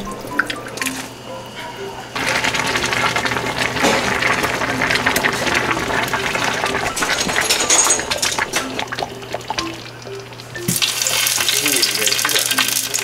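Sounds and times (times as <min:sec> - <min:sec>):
wet liquid bubbling: 0:08.3 - 0:13.0.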